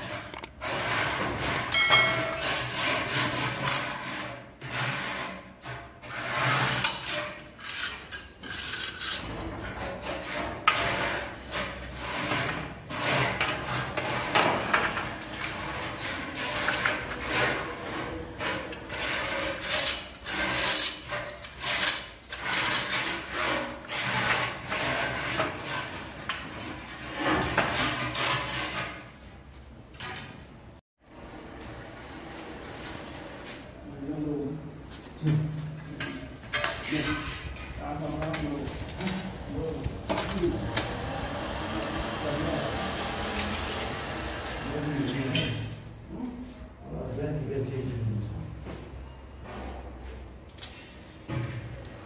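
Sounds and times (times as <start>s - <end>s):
hand tool scraping mortar: 0.0s - 29.4s, 34.9s - 46.7s.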